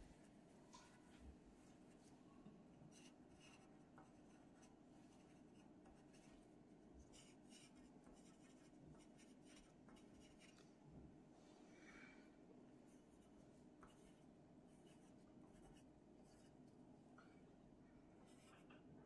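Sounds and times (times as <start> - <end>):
pencil scratching on paper: 2.9 - 10.6, 12.9 - 16.6, 18.2 - 18.8.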